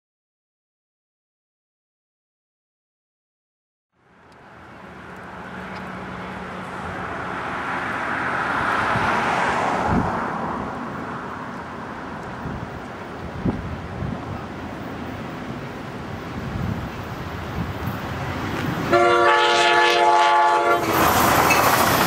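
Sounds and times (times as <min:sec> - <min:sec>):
vehicle passing: 0:04.0 - 0:13.6
traffic background: 0:04.0 - 0:22.0.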